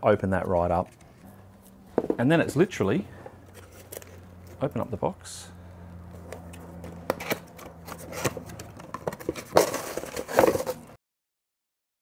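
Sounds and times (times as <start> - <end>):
cardboard box being handled: 6.2 - 11.0.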